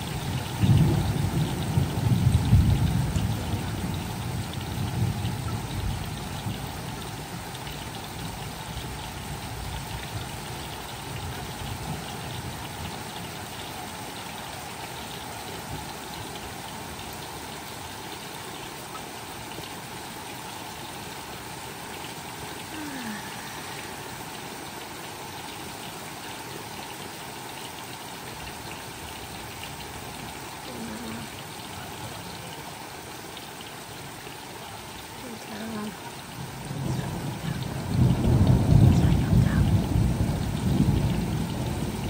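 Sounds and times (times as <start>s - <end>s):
rain falling steadily: 0.0s - 42.0s.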